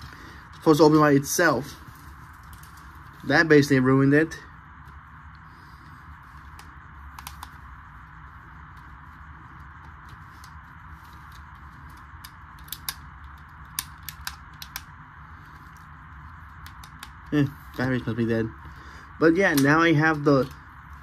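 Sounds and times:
low steady hiss: 0:00.0 - 0:21.0
plastic toy clicks and snaps: 0:06.6 - 0:07.6, 0:12.2 - 0:14.9, 0:16.6 - 0:17.3.

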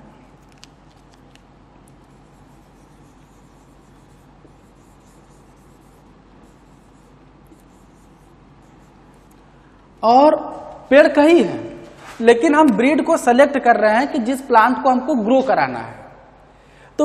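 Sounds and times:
steady low hum: 0:00.0 - 0:17.0
marker scratching on whiteboard: 0:01.9 - 0:09.4.

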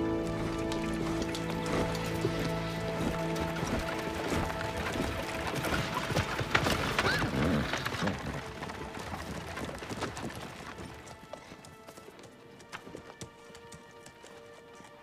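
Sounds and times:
steady music: 0:00.0 - 0:07.1
chariots rolling over dry ground: 0:00.0 - 0:15.0
horses' hooves clip-clopping: 0:00.0 - 0:15.0.

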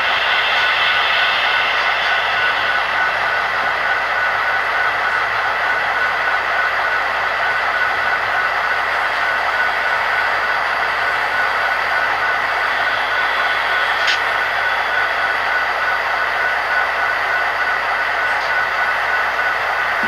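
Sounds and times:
model train humming and whining: 0:00.0 - 0:20.0.

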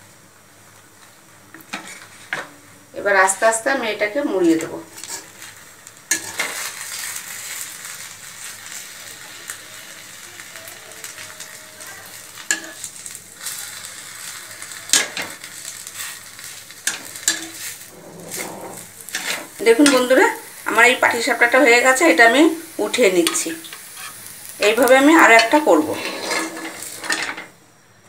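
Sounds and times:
batter sizzling in a pan: 0:00.0 - 0:27.8
metal spatula scraping a pan: 0:01.7 - 0:02.5, 0:04.4 - 0:07.6, 0:12.1 - 0:20.4, 0:22.1 - 0:27.5.

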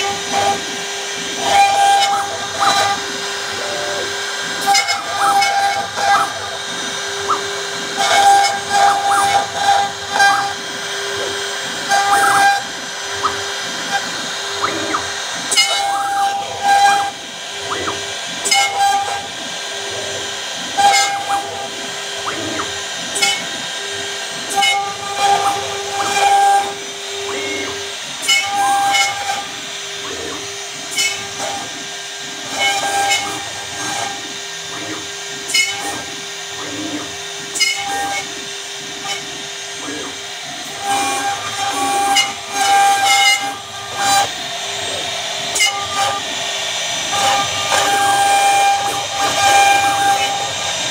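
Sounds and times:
router spindle whining: 0:00.0 - 0:50.9
high-pitched cutting tones: 0:07.2 - 0:19.4.

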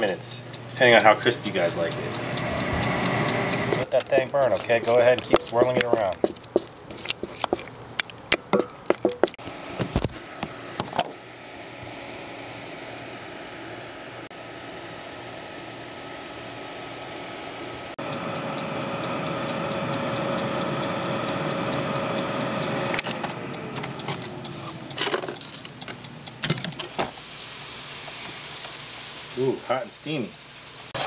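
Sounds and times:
oven fan humming: 0:00.0 - 0:31.0.

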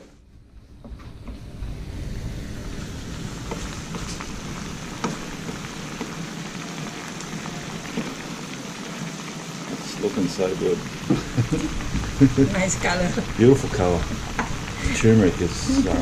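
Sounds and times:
sauce bubbling and sizzling: 0:00.0 - 0:16.0.

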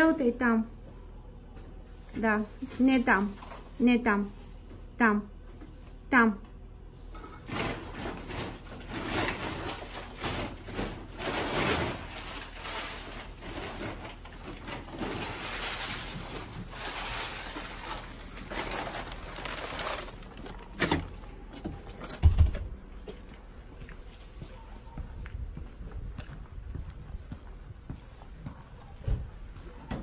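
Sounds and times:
plastic sheeting crinkling: 0:07.7 - 0:21.0.

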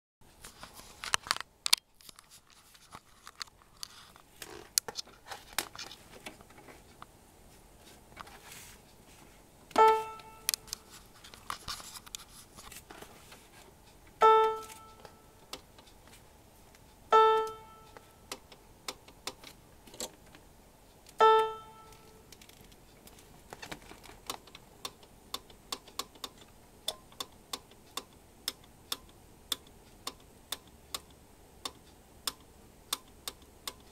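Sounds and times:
piano note from small speakers: 0:09.8 - 0:10.6, 0:14.2 - 0:15.3, 0:17.1 - 0:18.0, 0:21.2 - 0:22.2.

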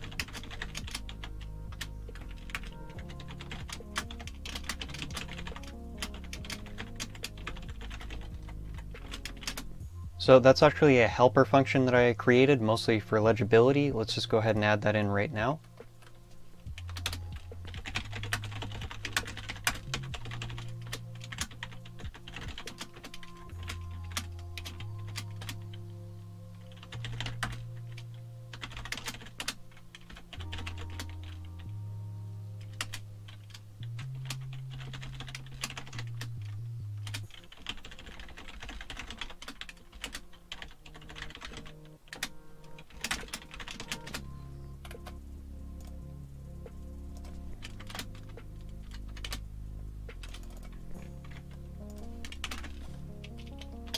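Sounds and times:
typing on computer keyboard: 0:00.0 - 0:09.7, 0:16.8 - 0:25.8, 0:26.7 - 0:31.5, 0:32.6 - 0:45.2, 0:47.2 - 0:49.4, 0:50.1 - 0:53.9
soft background music: 0:00.0 - 0:53.9.

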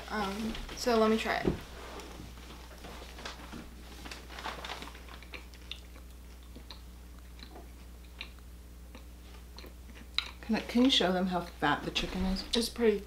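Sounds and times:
chewing crunchy food: 0:04.0 - 0:11.6.

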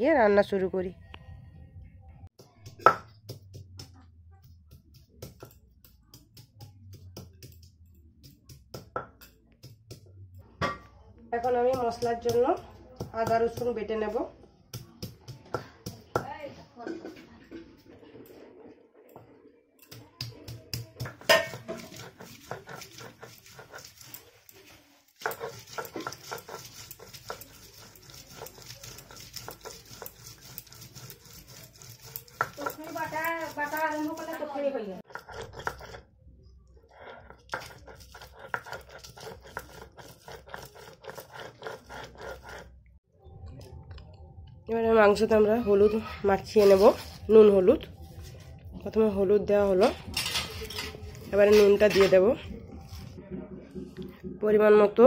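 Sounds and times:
stone pestle knocking on stone: 0:02.6 - 0:03.9, 0:19.9 - 0:22.8
stone scraping and knocking on stone: 0:20.7 - 0:24.2, 0:25.2 - 0:33.9, 0:35.1 - 0:36.1, 0:37.2 - 0:42.7.

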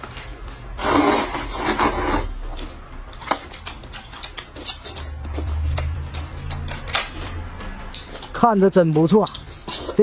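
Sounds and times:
chopsticks clicking against cups: 0:02.5 - 0:10.0.

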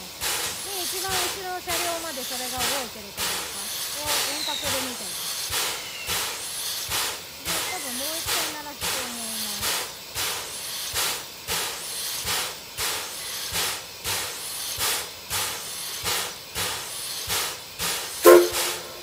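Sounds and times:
steam air pump puffing: 0:00.0 - 0:19.0.

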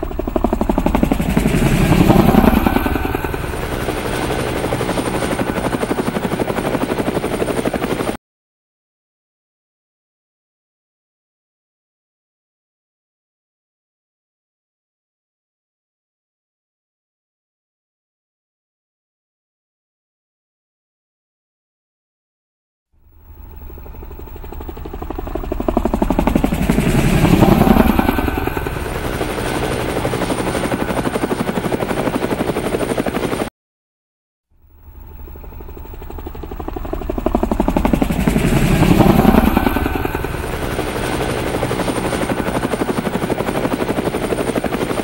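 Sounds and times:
helicopter rotor chop: 0:00.0 - 0:08.2, 0:23.1 - 0:33.5, 0:34.6 - 0:45.0
high whine: 0:34.6 - 0:42.9.

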